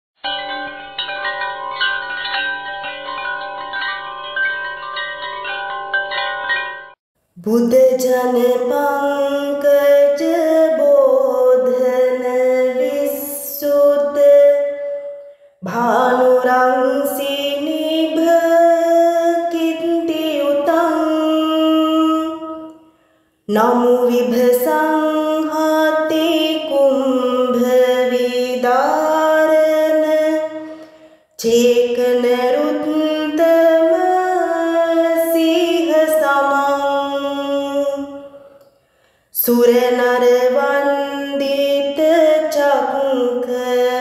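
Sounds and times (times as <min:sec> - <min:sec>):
chimes ringing: 0:00.2 - 0:07.0
woman singing: 0:07.4 - 0:22.8, 0:23.5 - 0:38.6, 0:39.4 - 0:44.0.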